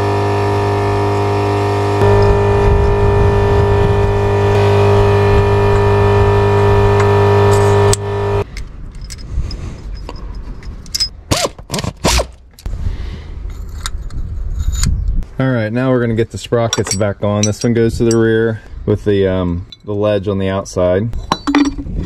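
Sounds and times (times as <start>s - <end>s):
steady machine hum: 0.0s - 8.6s
metal clinks and scrapes: 7.5s - 11.2s, 16.6s - 18.5s.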